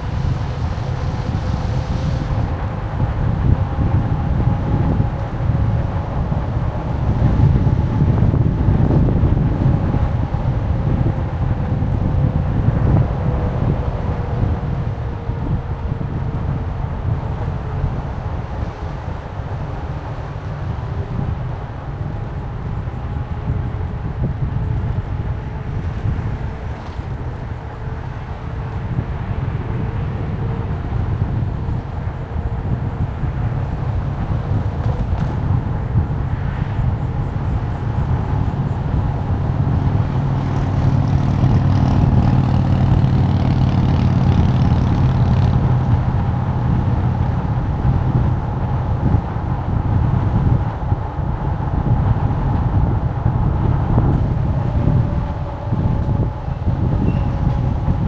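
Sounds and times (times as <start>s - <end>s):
vehicle rumble: 0.0s - 58.0s
faint whining tones: 52.5s - 58.0s.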